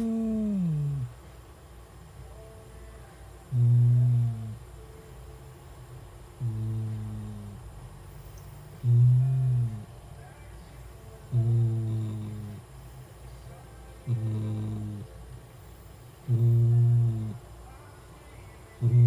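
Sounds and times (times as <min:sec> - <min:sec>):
cat snoring: 0:00.0 - 0:01.1, 0:03.5 - 0:04.6, 0:06.4 - 0:07.7, 0:08.8 - 0:09.9, 0:11.3 - 0:12.7, 0:14.0 - 0:15.1, 0:16.2 - 0:17.4, 0:18.8 - 0:19.0.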